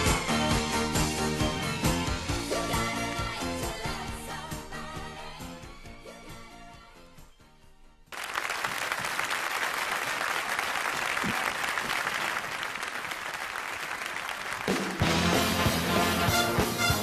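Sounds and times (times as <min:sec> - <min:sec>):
audience applauding: 0:08.1 - 0:16.1
band playing: 0:14.5 - 0:17.0.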